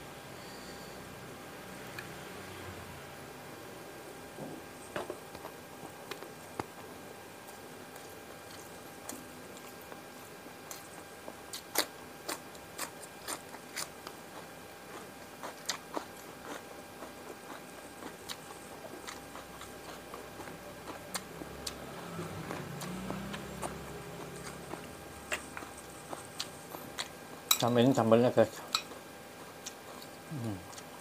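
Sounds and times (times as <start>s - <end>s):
wet chewing clicks and smacks: 10.6s - 21.8s, 22.4s - 27.5s.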